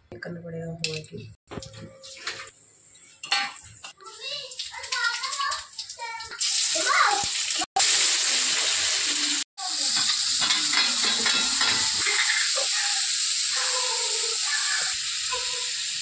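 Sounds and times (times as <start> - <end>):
onion and tomato sizzling: 2.0 - 16.0.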